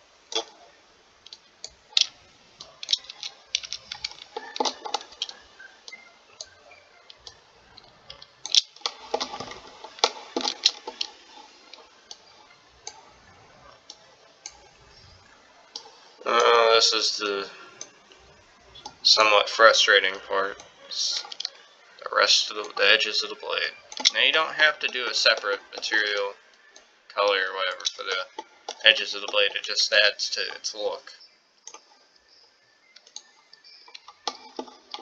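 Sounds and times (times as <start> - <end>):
mouse and keyboard clicking: 1.3 - 13.0.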